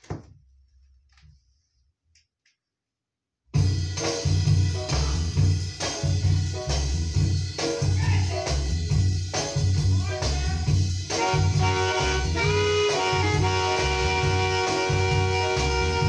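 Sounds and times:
music with drums and heavy bass: 3.6s - 16.0s.

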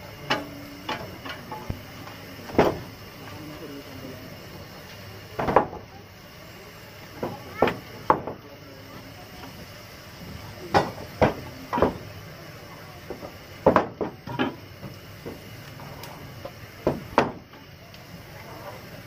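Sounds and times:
steady background noise: 0.0s - 19.0s
logs knocking into a firebox: 2.5s - 2.9s, 5.4s - 5.8s, 7.2s - 8.4s, 13.1s - 14.6s, 16.8s - 17.4s.

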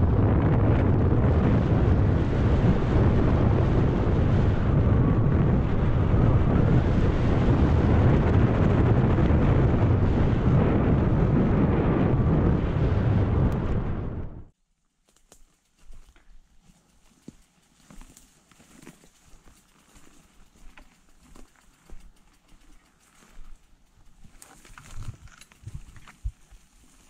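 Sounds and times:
wind buffeting microphone: 0.0s - 14.5s, 20.0s - 26.6s
bike tyres rattling on gravel: 15.0s - 27.0s.

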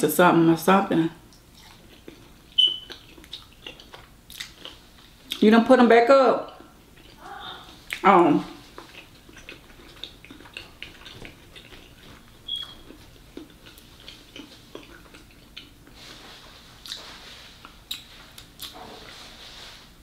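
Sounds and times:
chewing and lip smacks: 1.3s - 5.4s, 6.4s - 16.0s, 16.8s - 18.8s.

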